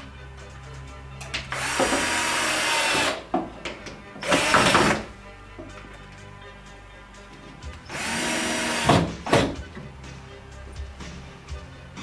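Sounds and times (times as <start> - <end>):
cordless drill running against wood: 7.9 - 8.9.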